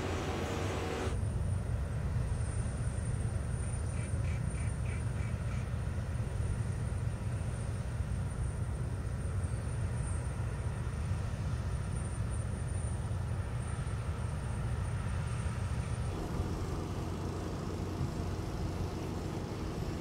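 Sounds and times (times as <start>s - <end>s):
low hum: 0.0s - 1.5s
low outdoor rumble: 0.0s - 20.0s.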